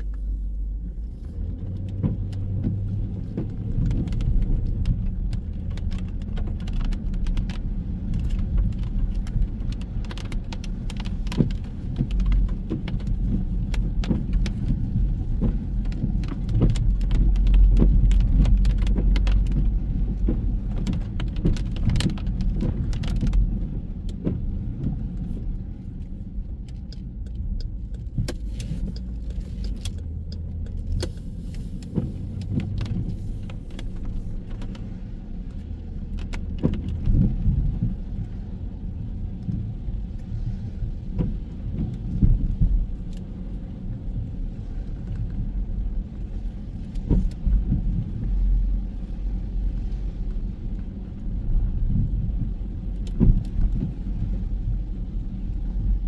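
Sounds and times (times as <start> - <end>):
road traffic rumble: 0.0 - 56.0
small sharp clicks and taps: 26.5 - 34.9.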